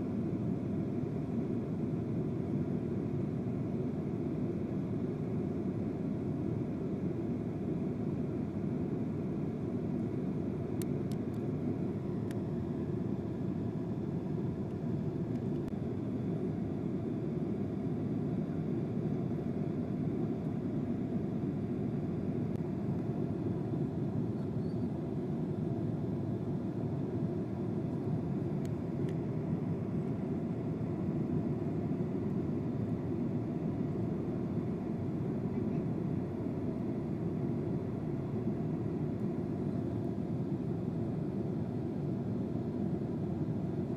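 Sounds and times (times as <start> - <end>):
jet cabin drone: 0.0 - 43.9.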